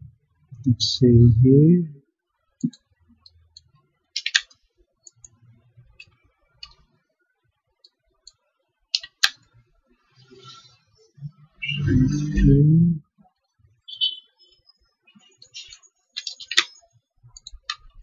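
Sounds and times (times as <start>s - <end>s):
computer mouse clicks: 2.6s - 5.4s, 6.0s - 6.9s, 7.8s - 9.4s, 15.4s - 18.0s
keyboard clicks: 3.6s - 5.4s, 9.0s - 9.4s, 15.4s - 18.0s.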